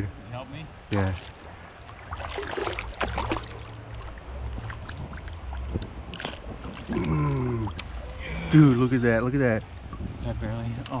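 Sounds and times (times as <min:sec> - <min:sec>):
low steady rumble: 0:00.0 - 0:11.0
fish splashing in water: 0:01.1 - 0:08.2.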